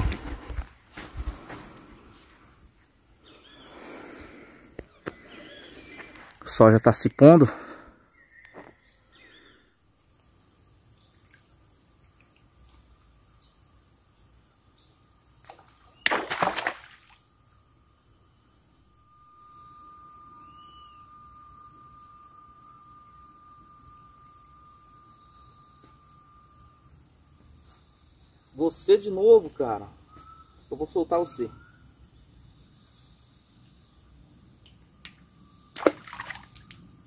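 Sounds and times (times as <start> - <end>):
steady high hum: 0.0 - 37.0
small high chirps: 8.1 - 16.2, 17.1 - 37.0.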